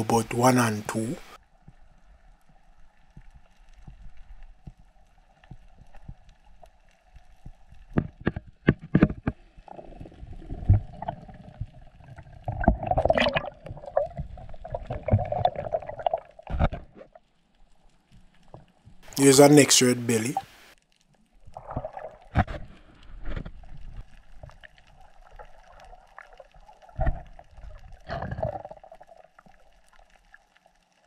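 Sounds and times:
sharp clicks and knocks: 0:07.9 - 0:09.4
water rushing and gurgling: 0:09.3 - 0:17.1.

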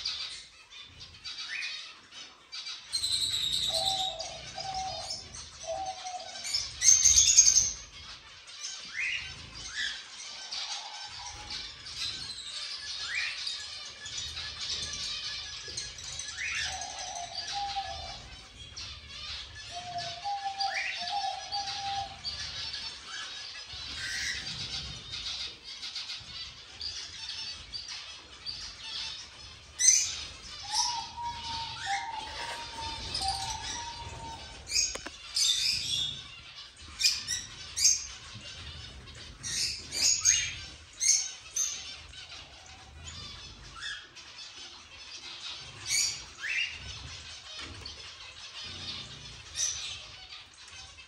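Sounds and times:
cage birds chirping and squawking: 0:00.0 - 0:51.0.

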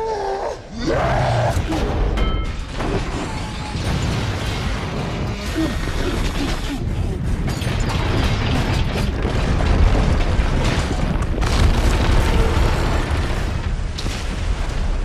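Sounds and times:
deep rumble of building collapsing: 0:00.6 - 0:15.0
crashing and cracking debris: 0:00.8 - 0:15.0.

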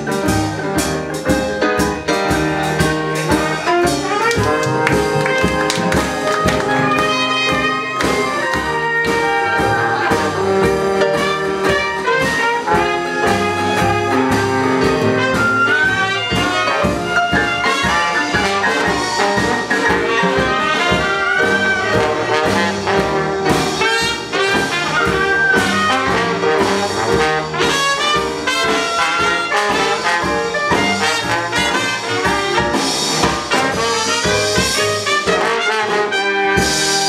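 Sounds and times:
jazz band playing: 0:00.0 - 0:37.0
trombone: 0:00.0 - 0:37.0
trumpet: 0:02.3 - 0:37.0
clarinet: 0:03.1 - 0:32.8
people clapping: 0:04.0 - 0:08.8.

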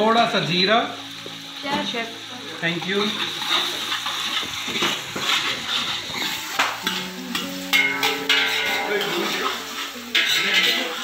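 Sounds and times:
onions sizzling in hot oil: 0:00.0 - 0:11.0
ladle stirring and scraping pot: 0:03.0 - 0:11.0
ladle clinking on pot: 0:06.2 - 0:10.8.

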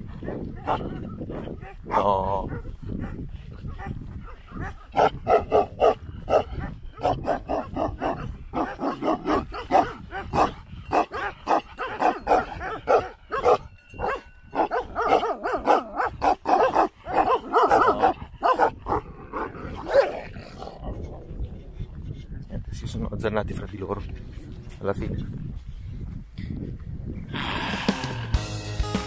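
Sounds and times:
dogs barking rapidly: 0:00.0 - 0:21.0.

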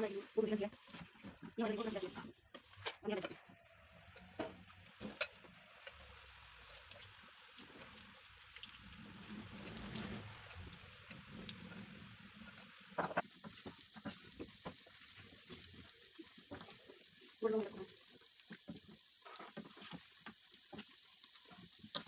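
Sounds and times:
batter deep-frying in oil: 0:00.0 - 0:22.0.

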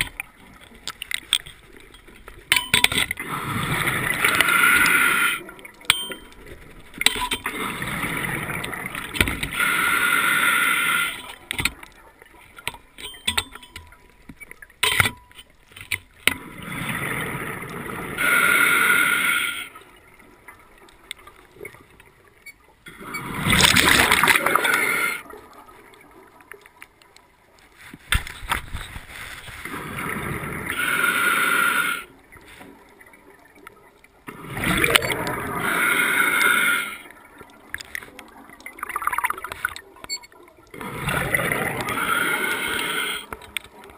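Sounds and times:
exhaled bubbles gushing: 0:03.2 - 0:05.8, 0:06.7 - 0:10.4, 0:22.9 - 0:26.4, 0:32.2 - 0:43.9
regulator hissing inhale: 0:09.5 - 0:11.3, 0:18.2 - 0:19.8, 0:30.7 - 0:32.2, 0:35.6 - 0:37.1, 0:41.8 - 0:43.4.

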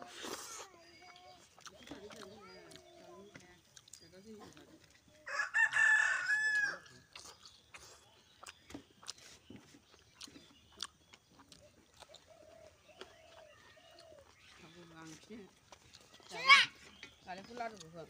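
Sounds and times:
eating by hand clicks and smacks: 0:00.0 - 0:05.1, 0:06.5 - 0:18.0
rooster crowing: 0:05.3 - 0:06.9.

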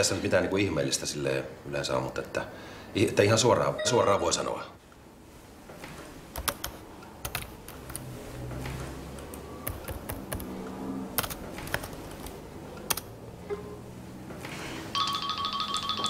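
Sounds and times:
typing on keyboard: 0:06.3 - 0:08.0, 0:09.2 - 0:13.1.

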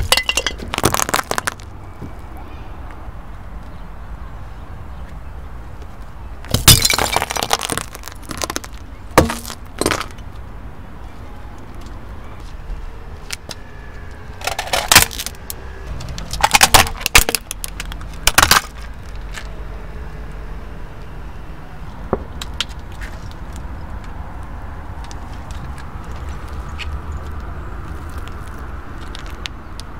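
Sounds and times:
brittle objects crunching under tyre: 0:00.0 - 0:01.8, 0:06.5 - 0:10.4, 0:14.4 - 0:19.5, 0:25.0 - 0:29.5.

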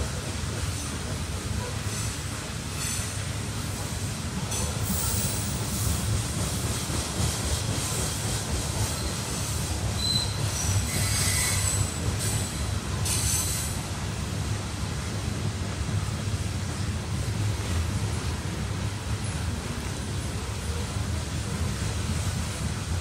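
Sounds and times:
train cars rumbling on rails: 0:00.0 - 0:23.0
high-pitched wheel squeals: 0:10.0 - 0:12.0.

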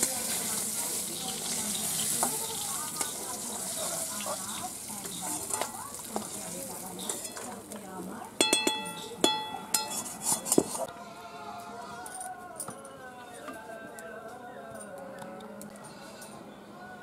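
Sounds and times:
fish sizzling in oil: 0:00.0 - 0:07.8
metal spatula scraping pan: 0:09.7 - 0:10.9.

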